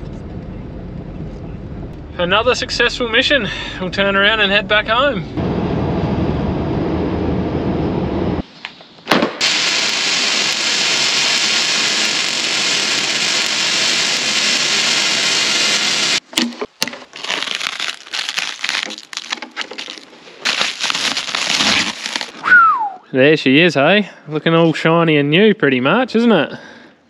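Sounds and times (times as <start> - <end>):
welding arc crackling and hissing: 9.4 - 16.2, 19.8 - 22.3
plastic wrap rustling: 16.8 - 22.4.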